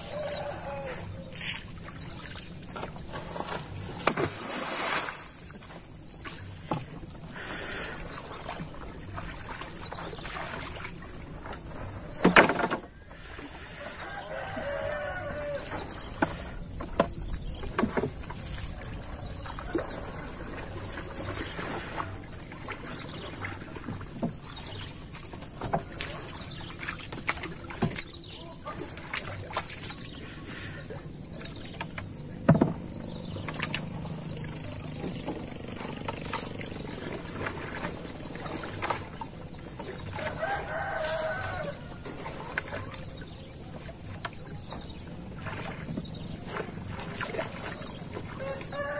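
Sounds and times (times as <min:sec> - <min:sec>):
water splashing: 0:00.0 - 0:48.9
wood knocking on canoe hull: 0:12.2 - 0:13.0, 0:15.6 - 0:18.8, 0:23.6 - 0:29.9, 0:31.4 - 0:34.2.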